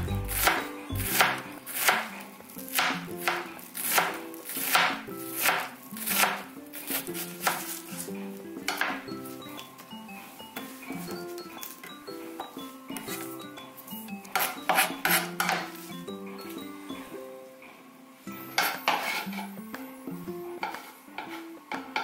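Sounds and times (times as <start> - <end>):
knife chopping on cutting board: 0.1 - 8.0, 8.6 - 9.0, 14.3 - 15.8.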